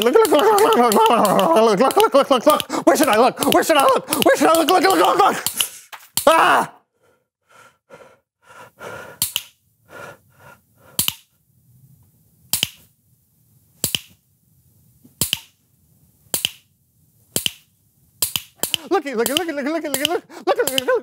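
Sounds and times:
sharp snaps: 0:00.0 - 0:06.4, 0:09.1 - 0:09.6, 0:10.9 - 0:11.4, 0:12.5 - 0:12.9, 0:13.8 - 0:14.2, 0:15.1 - 0:15.6, 0:16.3 - 0:16.7, 0:17.3 - 0:21.0.

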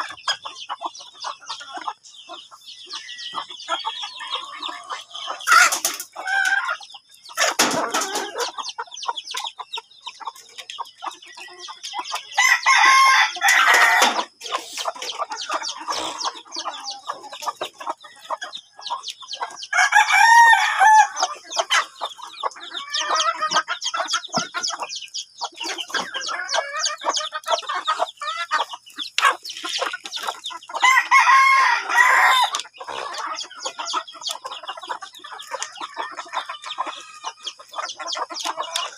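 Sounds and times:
chickens clucking: 0:00.0 - 0:38.9
rooster crowing: 0:12.4 - 0:14.2, 0:19.7 - 0:21.3, 0:30.8 - 0:32.6.

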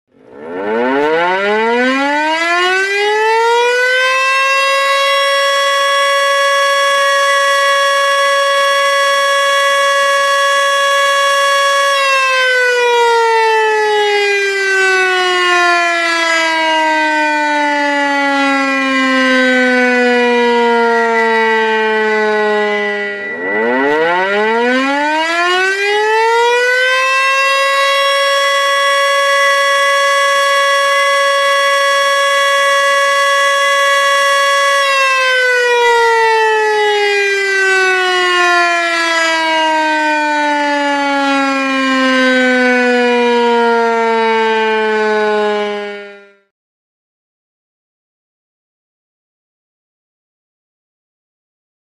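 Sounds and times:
warning siren wailing: 0:00.1 - 0:46.5
faint steady high tone: 0:22.9 - 0:23.7.

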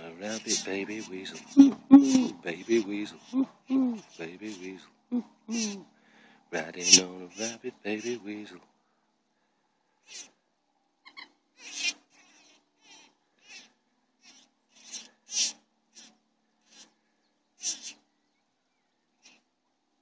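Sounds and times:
young hare screaming: 0:00.2 - 0:04.8, 0:05.5 - 0:05.9, 0:06.6 - 0:08.4.

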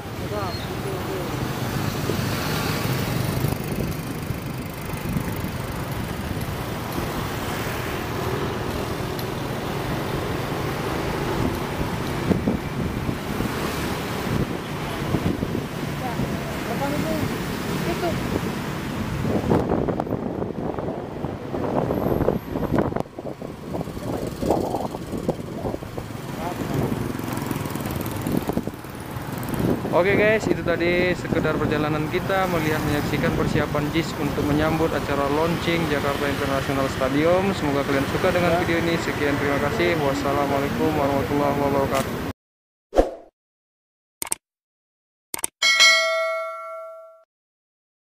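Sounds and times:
tyres on the road: 0:00.0 - 0:42.3
vehicle engines: 0:00.0 - 0:42.3
wind rumbling on microphone: 0:02.0 - 0:31.8.

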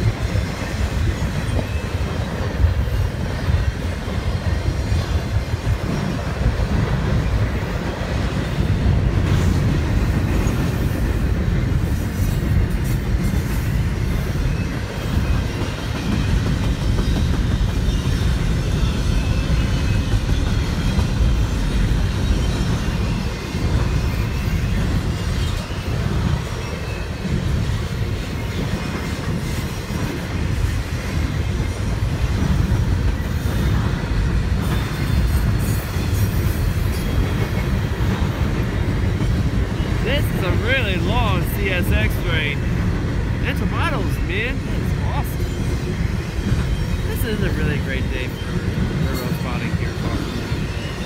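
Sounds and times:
clicks of train wheels: 0:00.0 - 0:40.0
freight train wheels rumbling on rail: 0:00.0 - 0:51.0.

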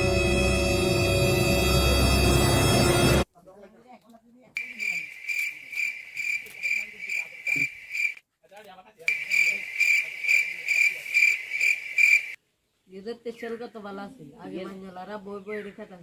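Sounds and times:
cricket chirping: 0:04.6 - 0:08.2, 0:09.1 - 0:12.4.

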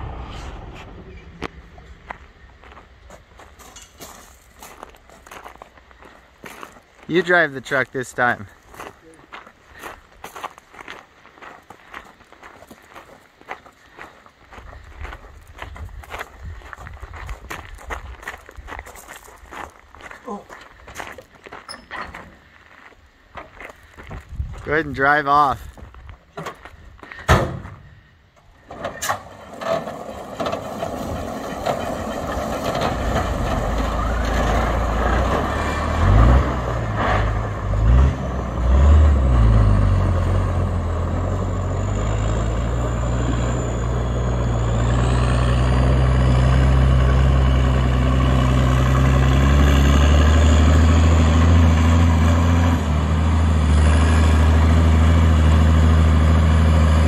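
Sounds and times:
truck diesel engine pulling away: 0:00.0 - 0:03.0, 0:28.6 - 0:57.0.

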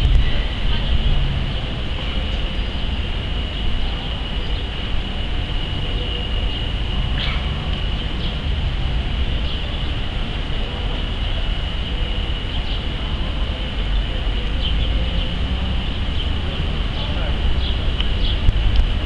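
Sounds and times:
crowd hubbub: 0:00.0 - 0:19.0
low rumble: 0:00.0 - 0:19.0.

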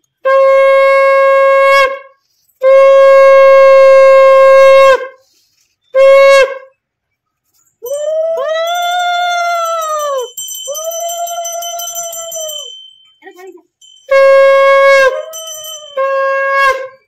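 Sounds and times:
conch shell blasts: 0:00.2 - 0:05.2, 0:14.0 - 0:17.0.

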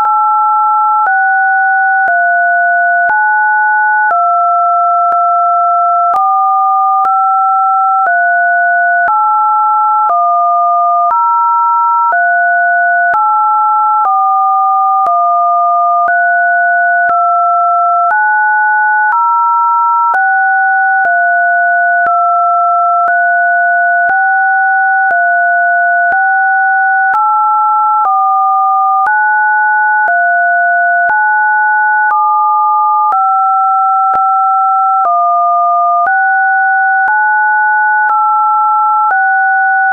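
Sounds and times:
electronic test tones: 0:30.0 - 0:37.2.

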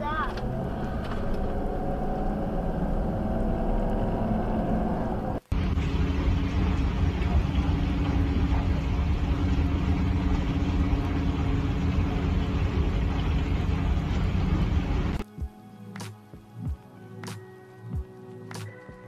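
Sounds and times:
truck engine droning: 0:00.0 - 0:15.2.

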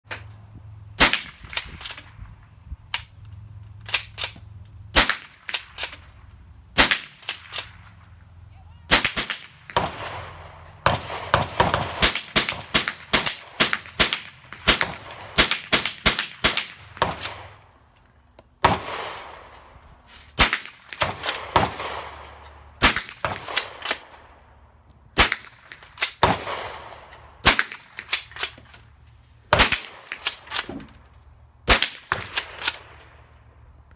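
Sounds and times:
rifle shots with echo: 0:06.8 - 0:08.0, 0:08.9 - 0:17.7, 0:18.6 - 0:19.8, 0:20.4 - 0:24.4, 0:25.2 - 0:28.4, 0:29.5 - 0:30.7, 0:31.6 - 0:33.2.

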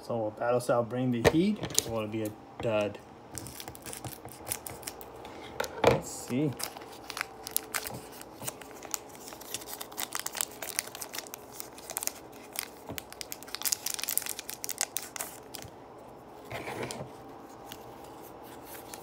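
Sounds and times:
foil wrapper crinkling and tearing: 0:03.4 - 0:05.1, 0:06.2 - 0:15.8, 0:17.5 - 0:19.0.

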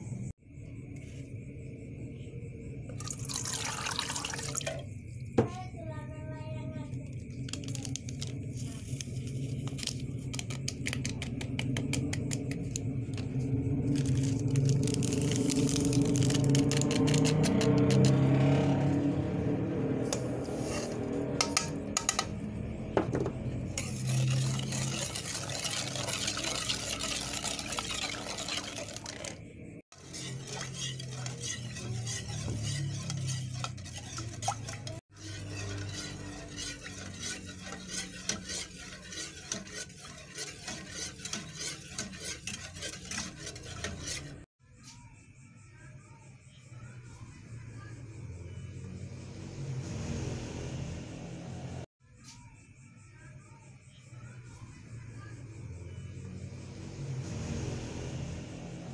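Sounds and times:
metal spoon scraping metal pot: 0:14.0 - 0:18.4, 0:20.1 - 0:22.4, 0:23.6 - 0:44.5.

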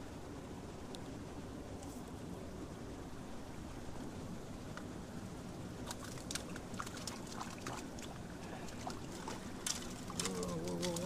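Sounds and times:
stream running over rocks: 0:05.7 - 0:11.0.

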